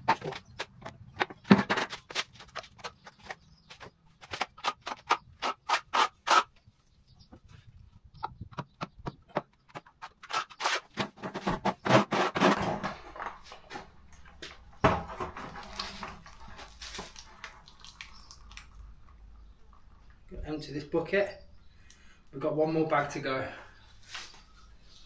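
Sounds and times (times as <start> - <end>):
plastic bucket clattering: 1.2 - 2.2, 10.4 - 17.2.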